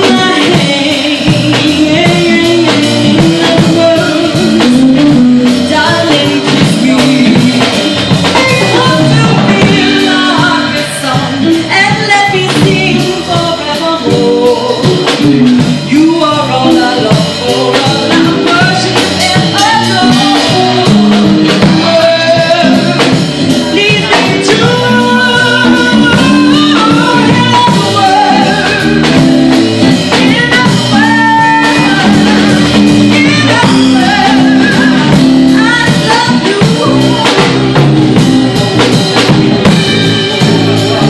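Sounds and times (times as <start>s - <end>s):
live band with guitar and drums: 0.0s - 41.0s
woman singing into microphone: 0.0s - 41.0s.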